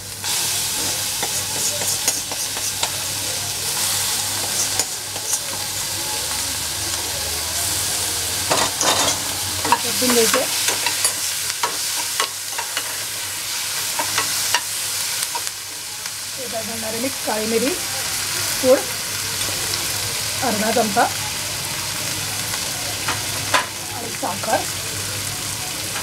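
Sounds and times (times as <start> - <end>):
paste sizzling in oil: 0.0 - 26.0
metal spoon scraping pan: 1.2 - 3.0, 4.4 - 5.7.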